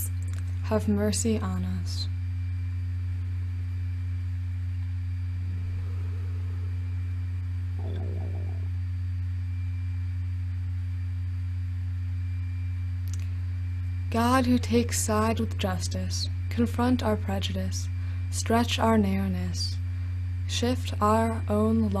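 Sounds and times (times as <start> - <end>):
low electrical hum: 0.0 - 22.0
faint high tone: 7.8 - 8.7.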